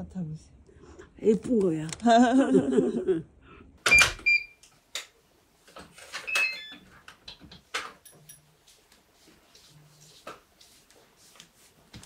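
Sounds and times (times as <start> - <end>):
digital door lock beeps: 3.9 - 4.6, 6.3 - 6.8.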